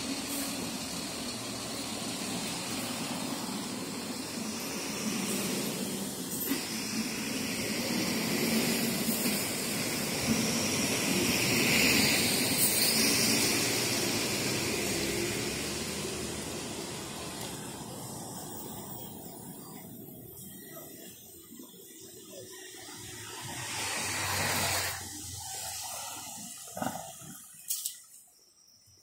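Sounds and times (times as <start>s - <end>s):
vehicle driving past: 11.6s - 18.9s.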